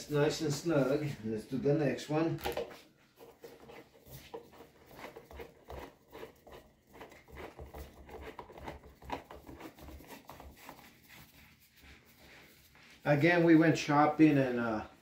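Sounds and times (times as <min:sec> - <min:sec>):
plastic leg scraping and clicking: 0:02.4 - 0:10.8.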